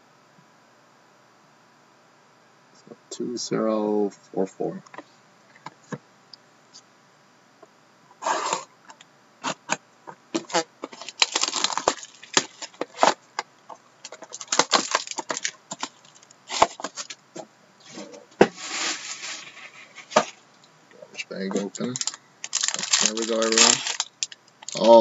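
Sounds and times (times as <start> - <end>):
wrapper and cardboard tearing: 8.2 - 8.7, 10.4 - 13.2, 14.0 - 17.2, 18.5 - 20.4, 21.6 - 25.0
sharp clicks and rustles: 8.9 - 17.2, 21.5 - 25.0.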